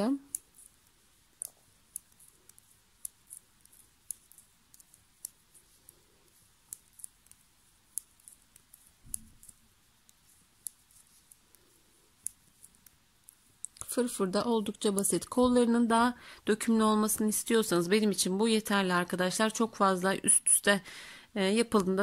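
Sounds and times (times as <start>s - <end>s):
metal knitting needles clicking: 0.0s - 15.3s.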